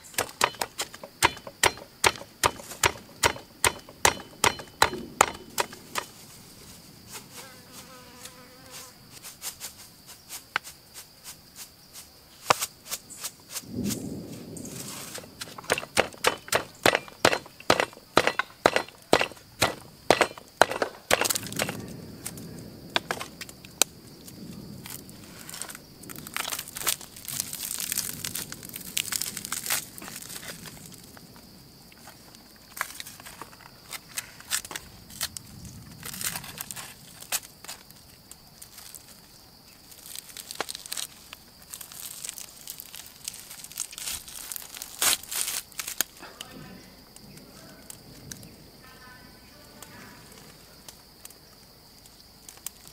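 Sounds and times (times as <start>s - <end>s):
stone pestle pounding in mortar: 0.2s - 5.7s, 15.6s - 21.8s
crackles and tearing of meat: 23.4s - 31.3s, 32.0s - 46.2s, 50.8s - 52.9s.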